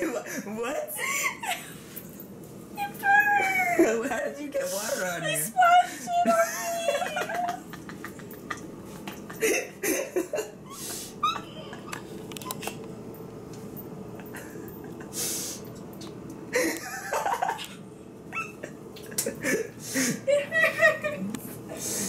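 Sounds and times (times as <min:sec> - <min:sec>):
woman breathing: 0:21.7 - 0:22.0.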